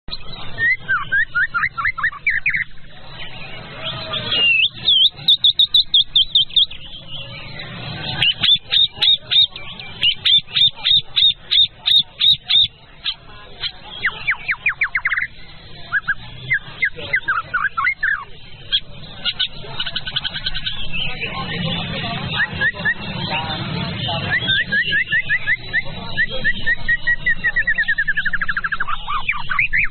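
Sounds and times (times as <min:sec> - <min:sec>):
songbird singing: 0:00.1 - 0:29.9.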